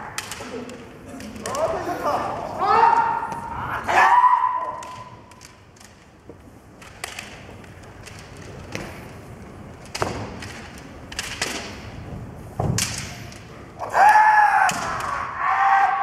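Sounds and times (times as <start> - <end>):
loud shout: 2.6 - 5.1, 13.8 - 16.0.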